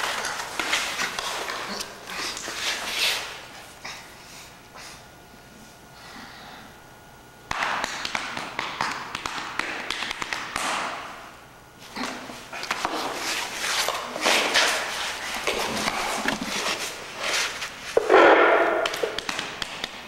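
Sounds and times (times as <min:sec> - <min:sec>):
hand slaps on body: 0:07.5 - 0:11.0, 0:18.8 - 0:20.0.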